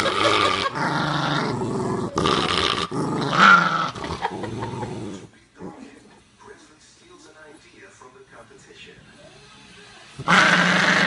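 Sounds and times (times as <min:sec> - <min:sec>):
dog growling: 0:00.0 - 0:06.2, 0:10.2 - 0:11.0.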